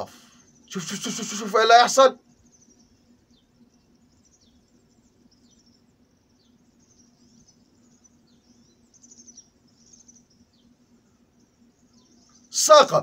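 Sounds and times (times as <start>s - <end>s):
faint birds chirping: 0.0s - 13.0s
faint low hum: 0.0s - 13.0s.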